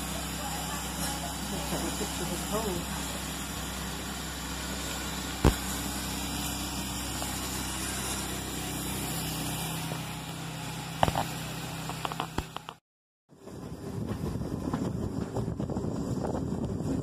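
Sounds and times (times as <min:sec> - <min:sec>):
steam hissing from locomotive: 0:00.0 - 0:10.2.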